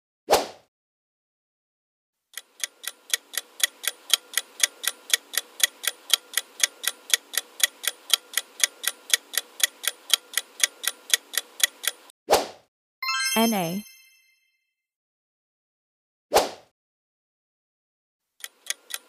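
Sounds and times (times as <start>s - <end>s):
clock ticking: 2.3s - 12.1s, 18.4s - 19.0s.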